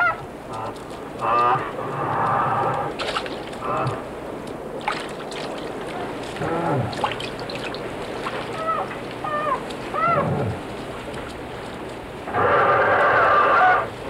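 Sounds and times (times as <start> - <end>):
beaver kits crying: 8.5 - 10.5.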